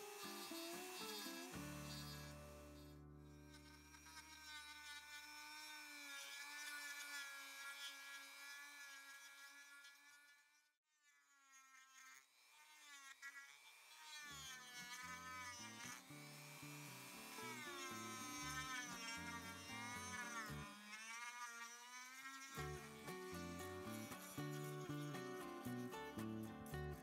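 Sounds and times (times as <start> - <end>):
rotary tool whine: 0.0 - 10.6, 12.1 - 26.4
background music: 22.6 - 27.0.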